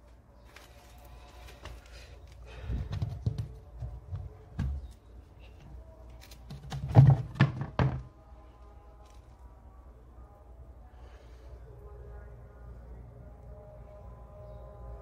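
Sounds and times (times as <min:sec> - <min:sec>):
loud plastic knocks on tile: 0:06.5 - 0:08.1.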